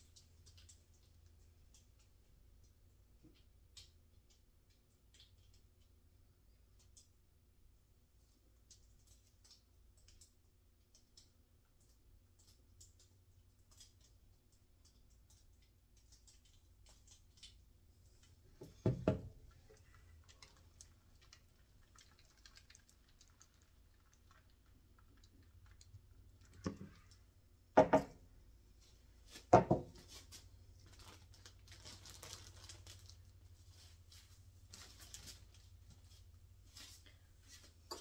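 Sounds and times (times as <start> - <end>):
dull wooden knocks: 18.6 - 19.3, 27.8 - 28.2, 29.5 - 30.0.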